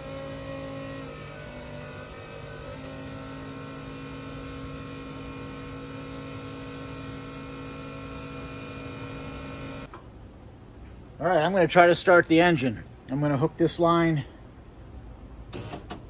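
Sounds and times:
electric fuel pumps whining: 0.0s - 10.1s, 15.5s - 16.0s.

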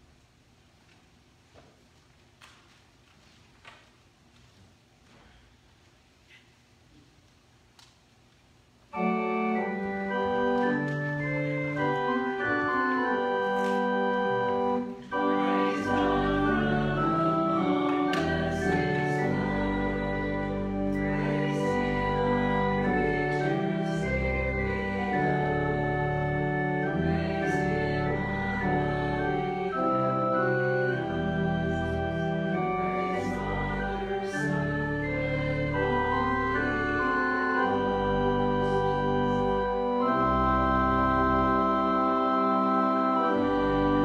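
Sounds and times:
church organ chords: 8.8s - 44.0s
deep organ pedal bass: 8.9s - 44.0s.

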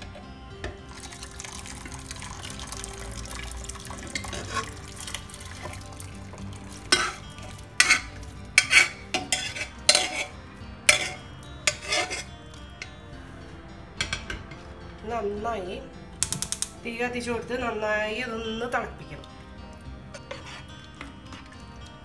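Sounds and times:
food and liquid pouring into pot: 0.0s - 12.8s
spoon scraping and clinking metal: 0.0s - 13.0s, 20.1s - 21.8s
faint background music: 0.0s - 22.0s.

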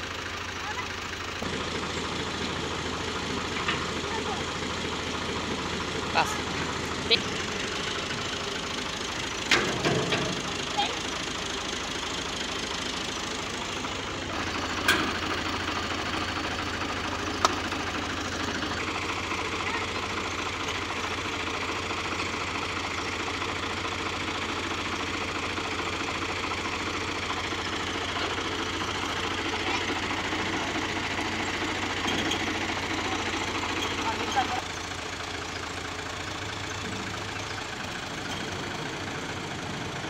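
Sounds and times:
diesel engine idling: 0.0s - 40.0s.

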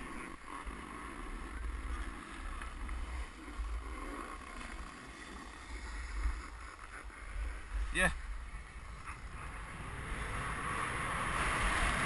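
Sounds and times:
skis sliding on packed snow: 0.0s - 8.9s.

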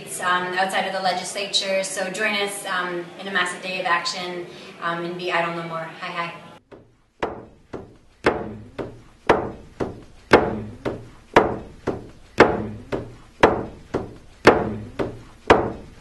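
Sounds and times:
drum beaten in steady rhythm: 7.2s - 16.0s.

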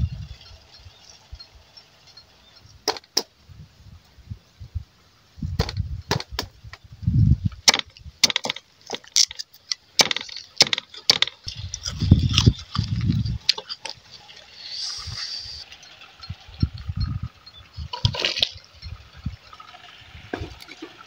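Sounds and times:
dull thuds: 5.5s - 6.6s
cleaver chopping on wooden block: 10.0s - 11.4s.

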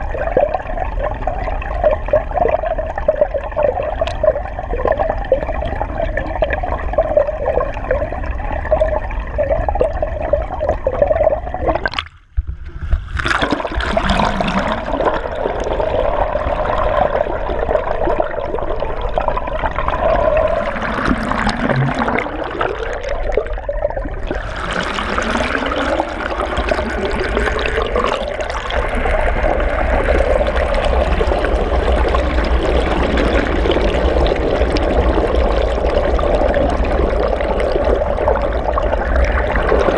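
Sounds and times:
water rushing underwater: 0.0s - 39.9s.

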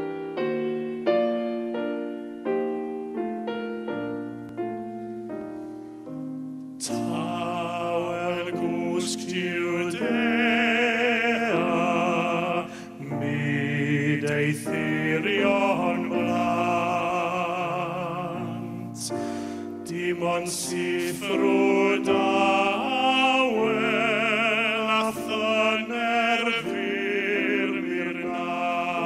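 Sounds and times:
slow piano playing: 0.0s - 29.0s
male tenor singing: 6.8s - 19.2s, 19.8s - 29.0s.

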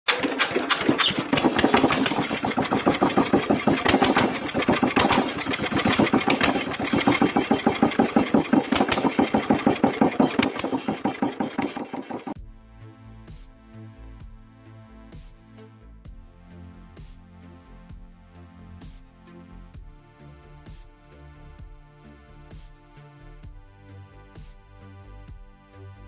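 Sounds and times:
diesel engine chugging: 0.1s - 12.4s.

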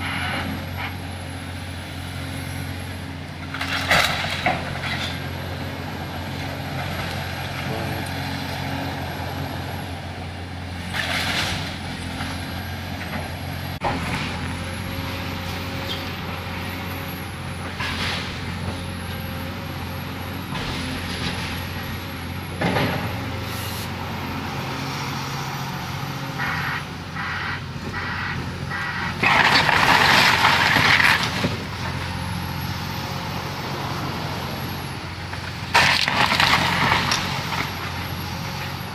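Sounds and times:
excavator diesel engine running: 0.0s - 38.9s
crashes of breaking wood: 29.2s - 31.6s, 35.7s - 37.7s.

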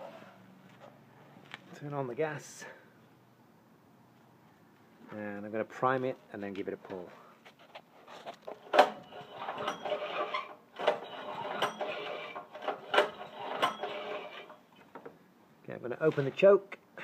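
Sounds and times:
pull-starter cord rasping: 8.6s - 14.6s.

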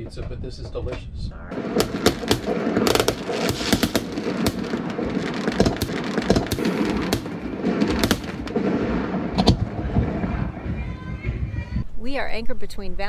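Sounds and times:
fireworks bangs: 1.5s - 11.8s
fireworks crackling: 1.5s - 11.8s.

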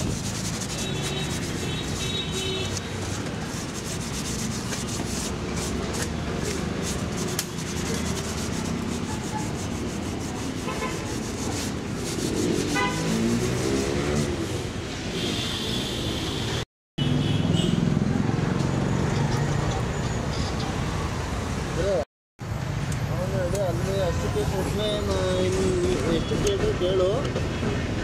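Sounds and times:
paper rubbing on metal: 0.0s - 14.4s.

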